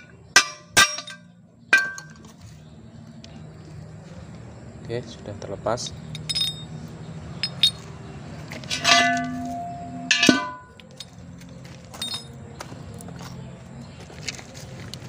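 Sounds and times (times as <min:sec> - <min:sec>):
ringing metal clangs: 0:00.0 - 0:02.3, 0:06.0 - 0:11.2, 0:11.9 - 0:12.4.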